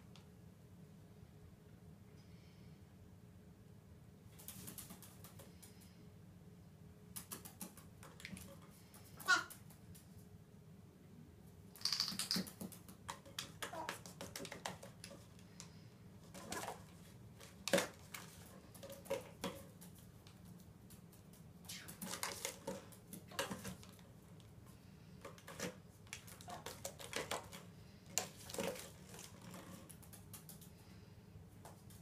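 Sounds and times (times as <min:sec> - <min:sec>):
parrot tapping on bench and bottles: 0:11.8 - 0:15.4.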